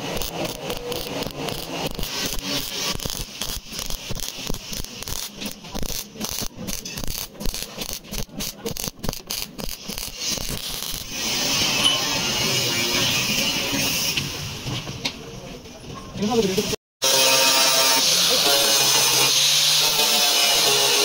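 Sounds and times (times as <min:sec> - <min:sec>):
welder arc crackling: 0:00.0 - 0:11.8.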